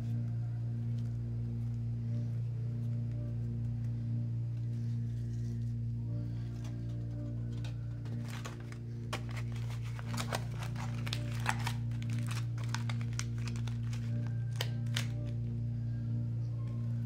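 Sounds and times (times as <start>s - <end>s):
low background drone: 0.0s - 17.0s
aluminium foil crinkling: 6.6s - 15.4s.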